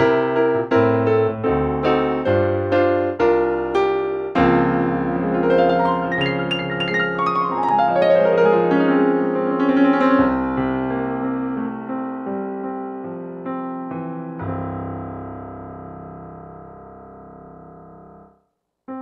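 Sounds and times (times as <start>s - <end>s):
piano playing chords and runs: 0.0s - 18.4s.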